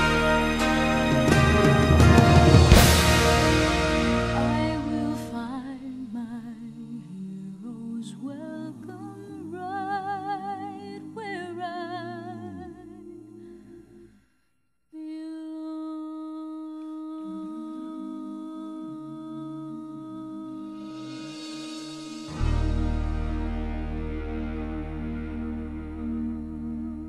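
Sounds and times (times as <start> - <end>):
music of steady held tones: 0.0 - 6.2, 20.7 - 27.0
background music with humming voice: 19.0 - 27.0.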